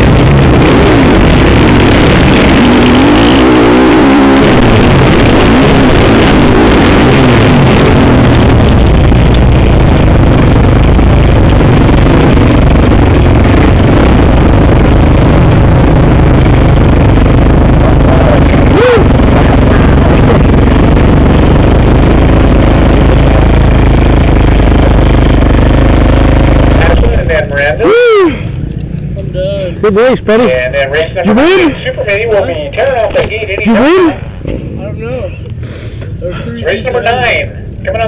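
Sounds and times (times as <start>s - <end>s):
dirt bike engine running: 0.0s - 29.0s.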